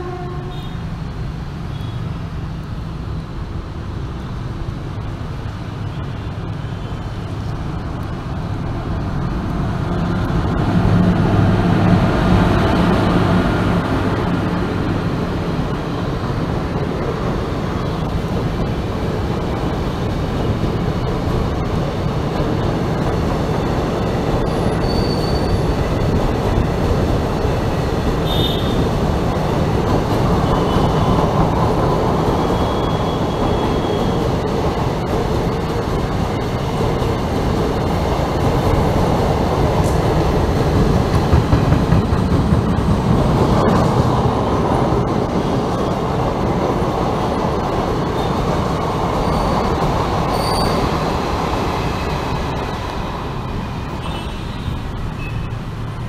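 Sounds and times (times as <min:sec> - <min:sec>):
train wheels rumbling on rails: 0:00.0 - 0:56.0
faint wheel squeals: 0:24.4 - 0:25.7, 0:50.3 - 0:50.9.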